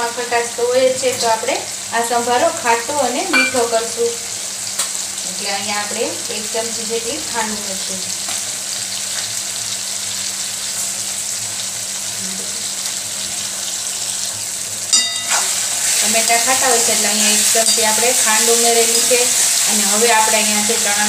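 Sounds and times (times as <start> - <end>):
tomatoes sizzling in hot oil: 0.0 - 21.0
sharp metallic clink: 3.3 - 3.7, 14.9 - 15.5.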